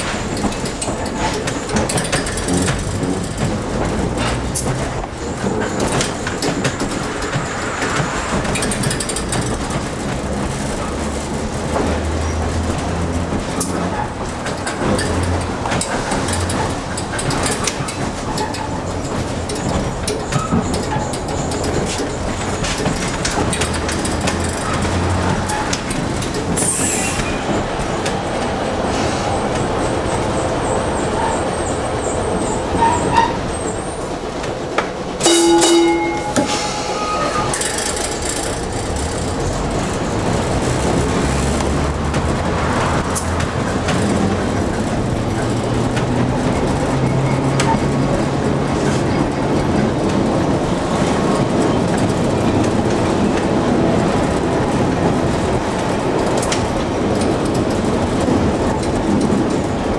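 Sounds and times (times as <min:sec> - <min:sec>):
rail clicks: 0:00.0 - 0:59.9
streetcar wheels and motors rumbling: 0:00.0 - 0:59.9
loud ringing tone: 0:35.2 - 0:37.6.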